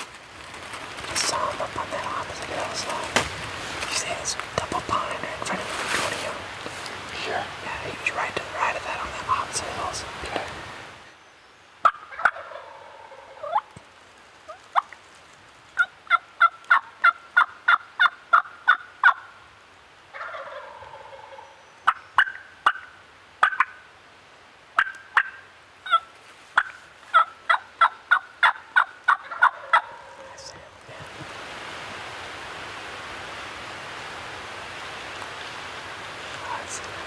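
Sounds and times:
turkey yelping: 0:11.8 - 0:13.7, 0:15.8 - 0:19.3, 0:20.2 - 0:23.8, 0:24.8 - 0:30.4
turkey gobbling: 0:11.8 - 0:13.8, 0:15.8 - 0:19.3, 0:20.1 - 0:23.8, 0:24.8 - 0:30.5.

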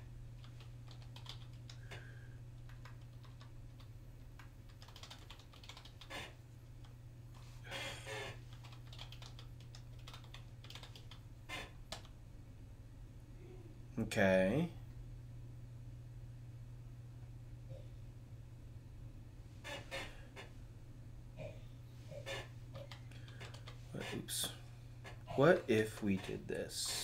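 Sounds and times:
steady low hum: 0:00.0 - 0:27.0
computer keyboard typing: 0:00.4 - 0:01.8, 0:02.6 - 0:06.3, 0:08.1 - 0:11.2, 0:11.9 - 0:12.1, 0:22.7 - 0:23.8.

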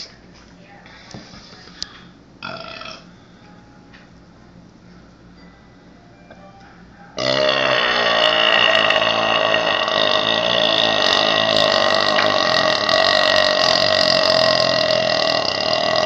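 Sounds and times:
man burping: 0:02.4 - 0:03.1, 0:07.2 - 0:16.0.

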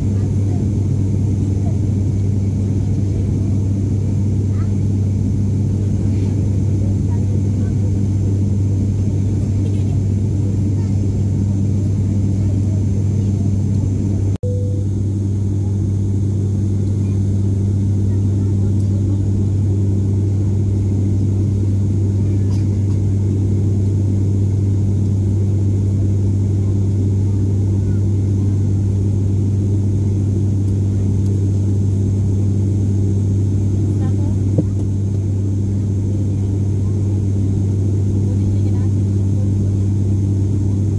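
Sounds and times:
turboprop engine drone: 0:00.0 - 0:40.9
higher steady tone: 0:14.4 - 0:15.6.

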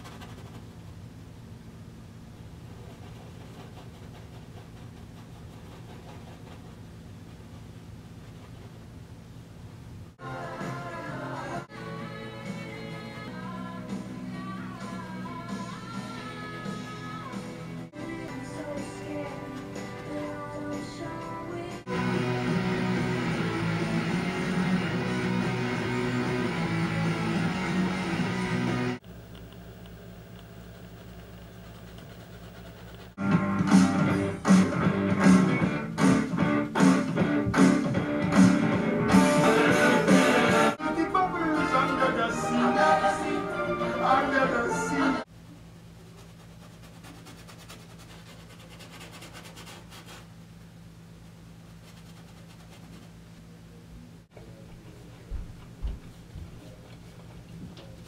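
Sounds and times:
faint scratching: 0:00.0 - 0:00.9, 0:02.4 - 0:08.9, 0:30.6 - 0:33.2, 0:46.0 - 0:50.3, 0:51.5 - 0:53.4
steady low hum: 0:00.0 - 0:43.6, 0:45.2 - 0:58.0.

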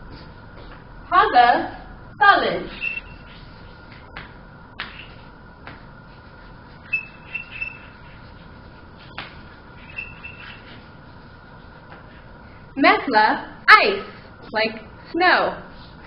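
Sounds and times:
chalk squeaking: 0:02.7 - 0:04.0, 0:04.8 - 0:05.3, 0:06.2 - 0:12.3.

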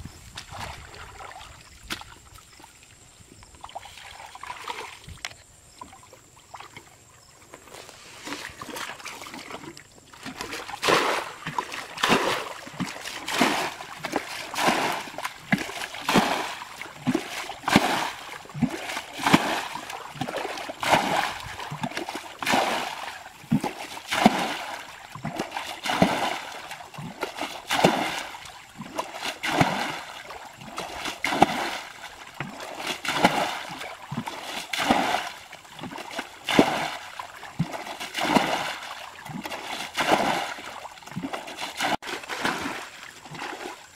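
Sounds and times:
bucket scooping water: 0:00.0 - 0:43.9
water splashing pour: 0:10.2 - 0:43.9.

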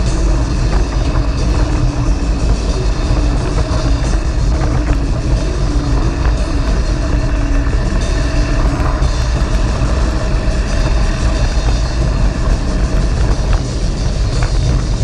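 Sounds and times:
bike rattling: 0:00.0 - 0:15.0
bike tyres rolling on gravel: 0:00.0 - 0:15.0
wind buffeting microphone: 0:00.0 - 0:15.0.

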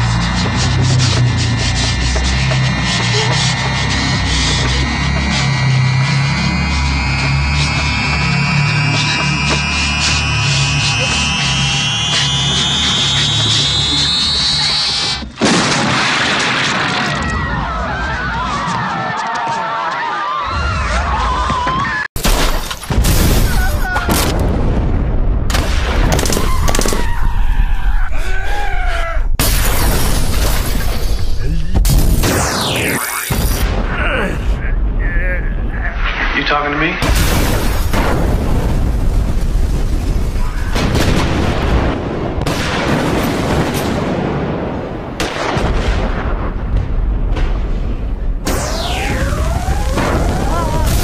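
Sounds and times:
heavy booms and bangs: 0:15.3 - 0:17.9, 0:22.2 - 0:27.3, 0:29.4 - 0:51.0
snatches of voices: 0:32.8 - 0:33.5.

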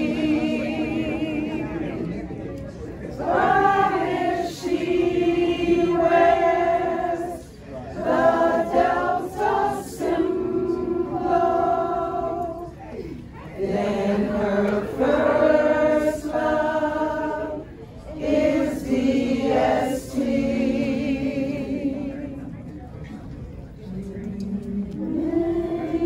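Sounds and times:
women singing unaccompanied: 0:03.2 - 0:12.8, 0:13.6 - 0:22.4, 0:23.9 - 0:26.0.

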